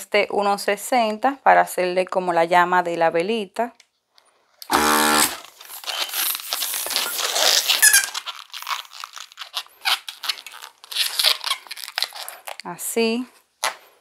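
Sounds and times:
electric balloon inflator: 0:04.6 - 0:05.4
latex balloon squeaking: 0:04.7 - 0:12.6.

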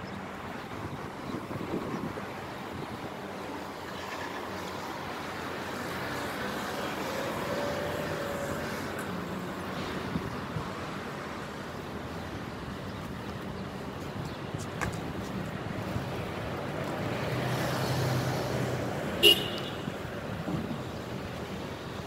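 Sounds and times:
car passing: 0:04.0 - 0:11.0.

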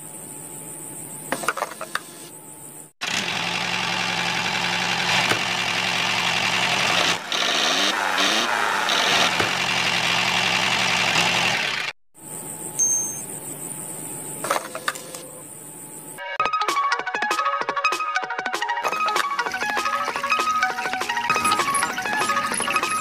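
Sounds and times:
engine running: 0:03.0 - 0:12.0, 0:19.0 - 0:23.0.

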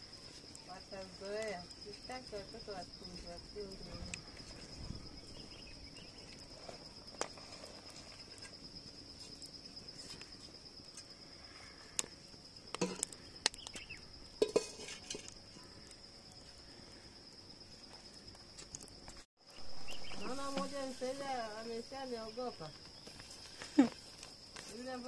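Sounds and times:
high insect trill: 0:00.0 - 0:25.0
pots and utensils clinking: 0:12.8 - 0:13.1, 0:14.4 - 0:15.4.

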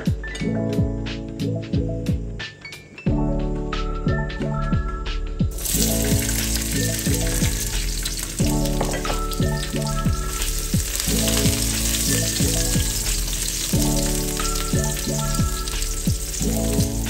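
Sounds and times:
background music with steady beat: 0:00.0 - 0:17.0
food sizzling in hot oil: 0:05.5 - 0:17.0.

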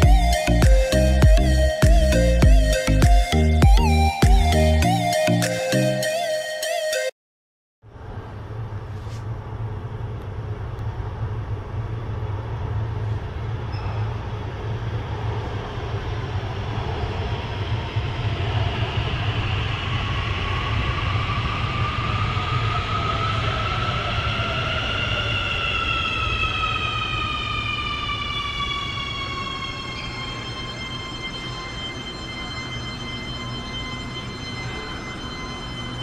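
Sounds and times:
rising electric whine: 0:00.0 - 0:07.1, 0:07.9 - 0:36.0
metro train rumbling: 0:07.9 - 0:36.0.

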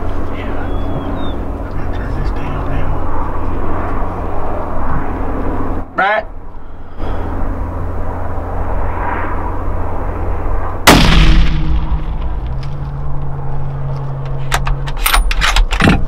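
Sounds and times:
rifle shot with echo: 0:10.9 - 0:12.5.

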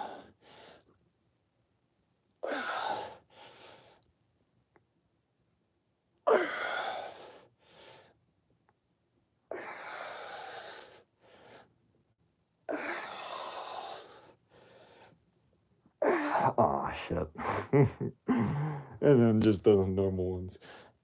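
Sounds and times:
man inhaling: 0:18.3 - 0:19.0.

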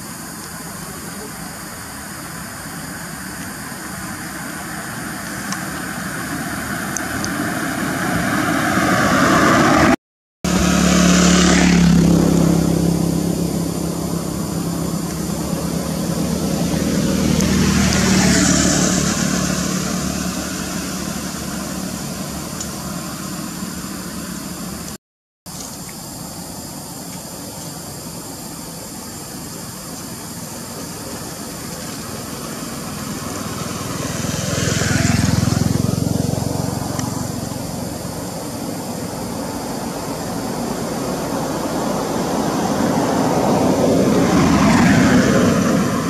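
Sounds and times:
vehicles passing by: 0:00.0 - 0:46.0.

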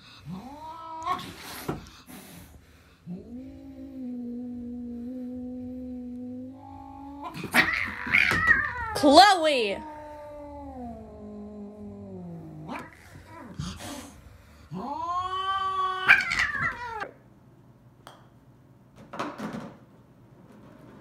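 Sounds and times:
cats yowling: 0:06.2 - 0:14.0, 0:14.7 - 0:17.2.

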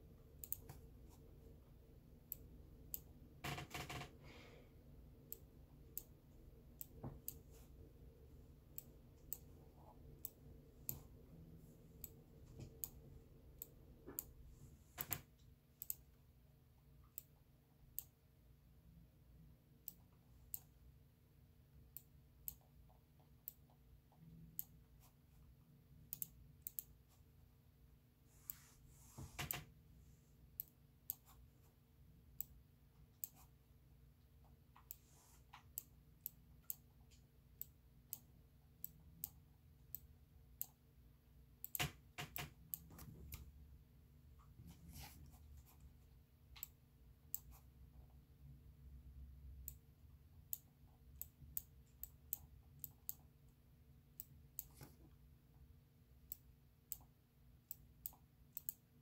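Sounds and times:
faint room hum: 0:00.0 - 0:59.0
sharp mouse clicks: 0:57.7 - 0:58.8.

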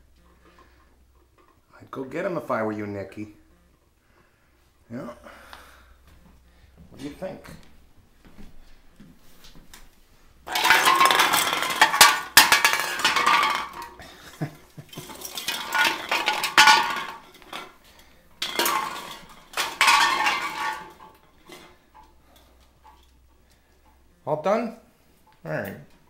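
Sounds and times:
cans clattering and rolling: 0:00.1 - 0:02.2, 0:10.4 - 0:24.0.

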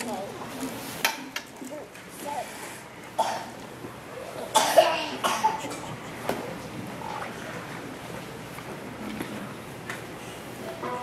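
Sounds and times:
audience coughing: 0:03.2 - 0:03.6, 0:04.4 - 0:06.2.

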